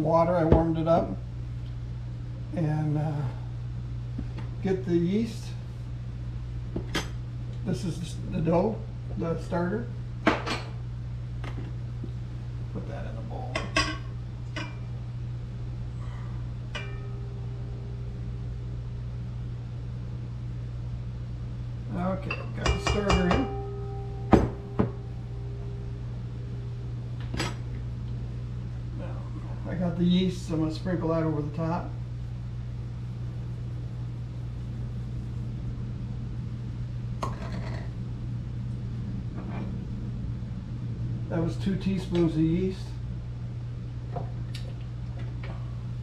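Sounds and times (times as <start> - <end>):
steady low hum: 0.0 - 46.0
glass cup clinking on steel bowl: 22.2 - 24.9.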